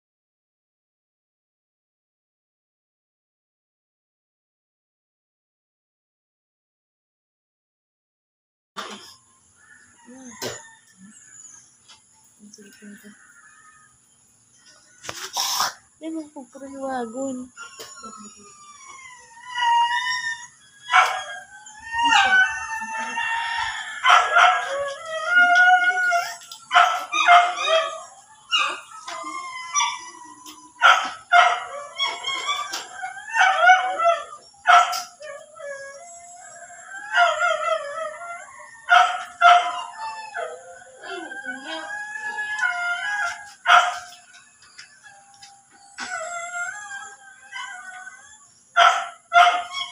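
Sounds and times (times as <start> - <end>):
high-pitched animal howling: 17.4 - 44.2, 45.0 - 49.9.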